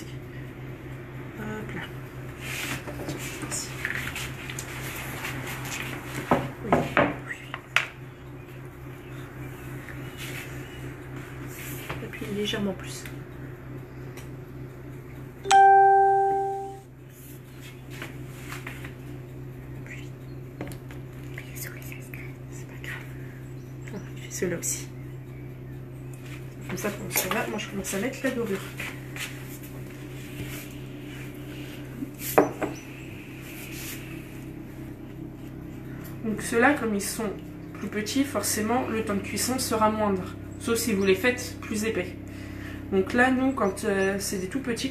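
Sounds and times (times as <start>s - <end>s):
steady low hum: 0.0s - 44.9s
bell-like chime: 15.4s - 16.8s.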